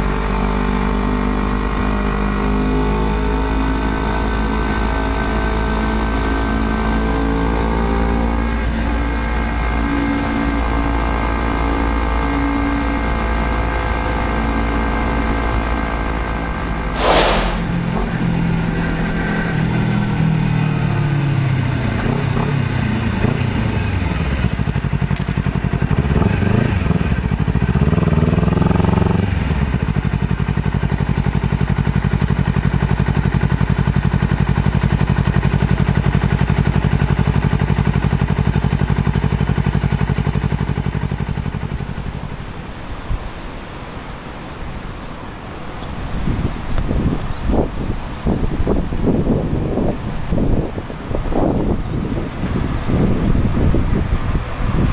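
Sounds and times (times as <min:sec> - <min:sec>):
sharp burst of noise: 0:17.0 - 0:18.0.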